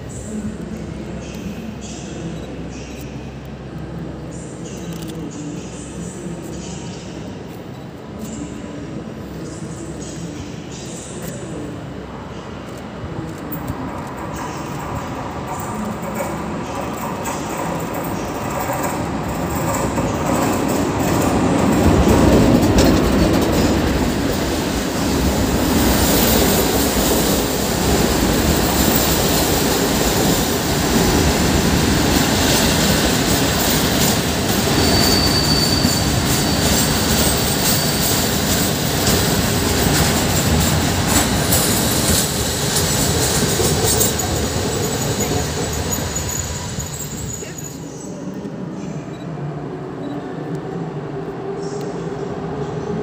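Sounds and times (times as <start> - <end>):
train wheels rumbling and clicking: 12.4 - 53.0
high wheel squeal: 34.6 - 38.3, 44.0 - 48.0.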